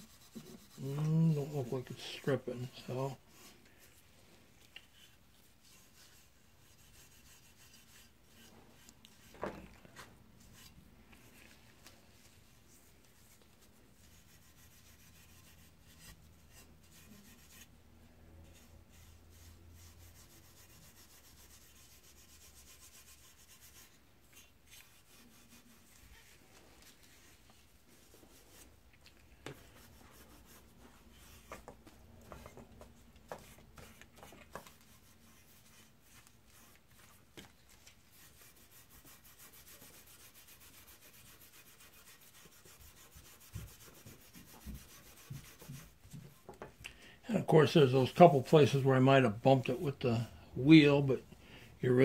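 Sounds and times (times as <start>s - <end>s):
scrubbing in metal bowl: 29.6s - 46.1s.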